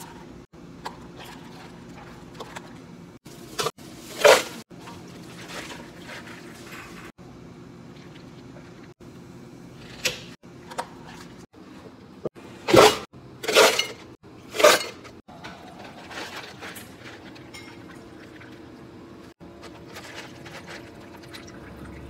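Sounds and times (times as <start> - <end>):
ice cubes clattering into cups: 19.6 - 21.8.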